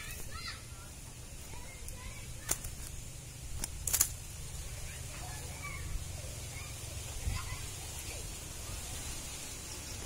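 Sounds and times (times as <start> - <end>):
sharp crackling clicks: 1.8 - 4.2.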